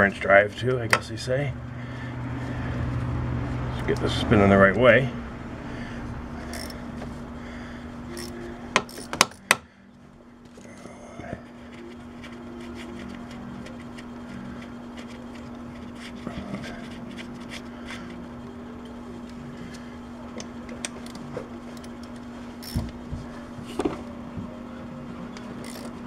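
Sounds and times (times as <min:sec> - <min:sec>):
steady low hum: 0:00.0 - 0:26.0
ratchet clicking: 0:06.5 - 0:06.8, 0:08.1 - 0:09.5, 0:21.8 - 0:22.9, 0:25.6 - 0:26.0.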